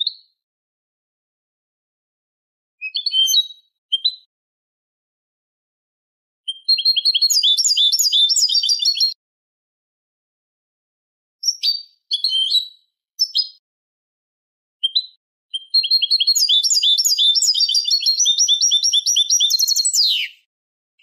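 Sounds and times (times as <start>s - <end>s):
goldfinch chirping and twittering: 6.5s - 9.1s, 15.6s - 20.4s.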